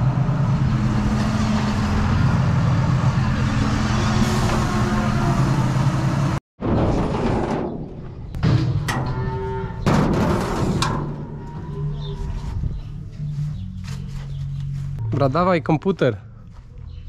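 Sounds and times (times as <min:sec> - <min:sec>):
tractor engine running: 0:00.0 - 0:06.4
cow mooing: 0:09.0 - 0:09.9.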